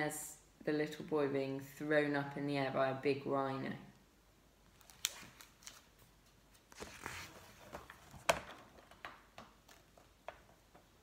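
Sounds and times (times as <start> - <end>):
paper rustling: 4.7 - 9.0.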